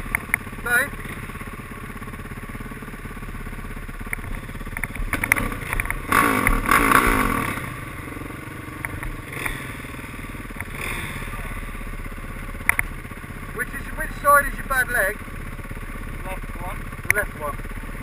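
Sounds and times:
dirt bike engines idling: 0.0 - 18.0
sharp clicks and clatters: 4.0 - 6.7, 12.6 - 13.0
engine revving: 4.2 - 15.2.

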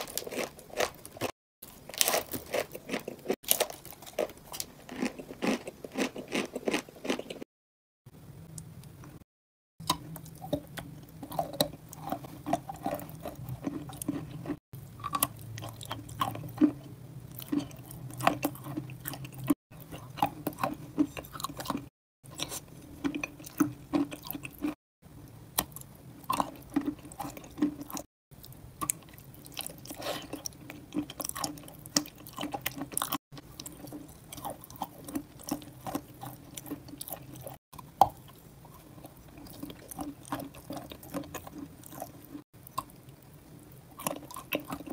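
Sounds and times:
wet chewing mouth sounds: 28.8 - 43.2, 44.0 - 44.9.

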